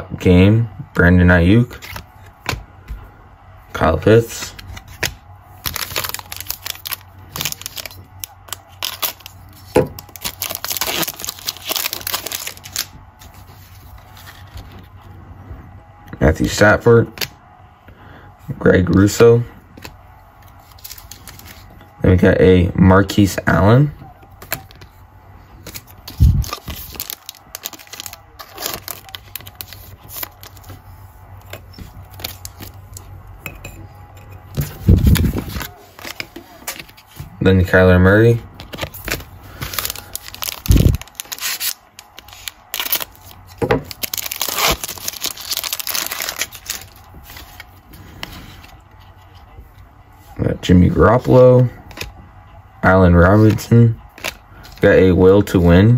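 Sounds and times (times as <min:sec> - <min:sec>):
card pack wrapper crinkling: 0:04.5 - 0:14.7, 0:19.8 - 0:21.7, 0:25.6 - 0:33.1, 0:38.6 - 0:47.8.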